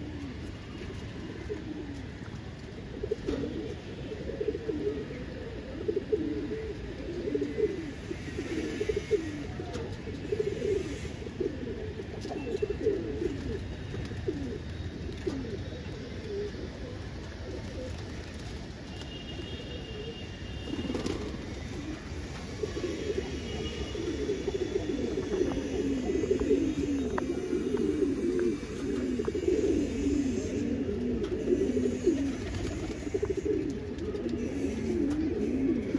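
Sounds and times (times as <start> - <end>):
pigeons cooing: 0.0 - 18.6, 19.8 - 35.9.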